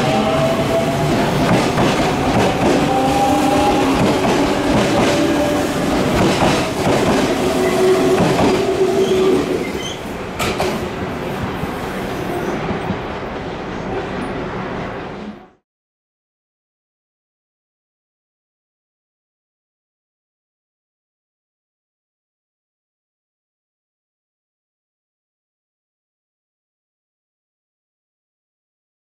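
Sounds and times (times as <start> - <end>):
wheels clattering on rails: 0.1 - 10.9.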